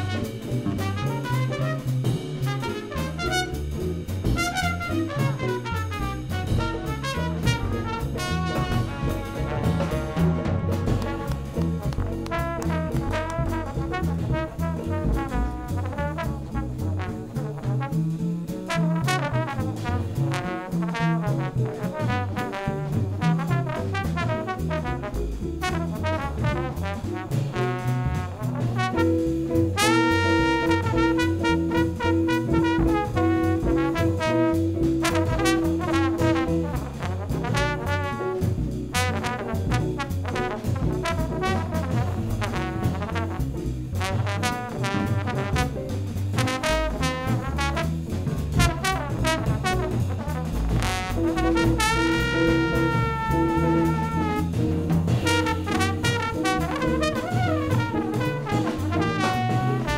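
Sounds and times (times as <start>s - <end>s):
drums and cymbals: 0.0s - 59.9s
live jazz ensemble: 0.0s - 59.9s
trombone: 0.0s - 59.9s
walking upright bass: 0.0s - 59.9s
repeated horn note: 4.4s - 11.6s, 29.8s - 38.2s, 50.8s - 54.6s, 55.2s - 59.9s.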